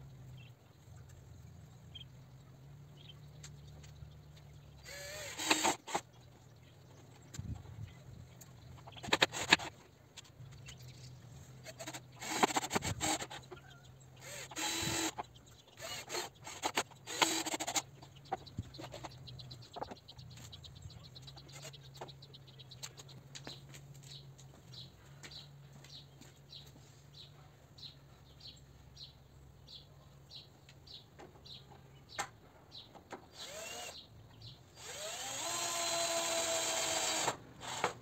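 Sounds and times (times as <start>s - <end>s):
birds chirping: 0.0s - 36.3s
cordless drill driving screws: 4.8s - 6.0s, 11.6s - 13.4s, 14.2s - 15.2s, 15.8s - 17.8s, 33.3s - 34.0s, 34.8s - 38.0s.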